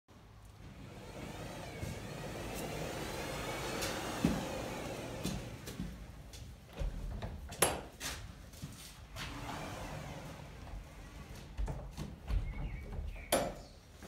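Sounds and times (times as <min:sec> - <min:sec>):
glass door panels rolling on track: 0:00.7 - 0:07.1, 0:09.2 - 0:13.3.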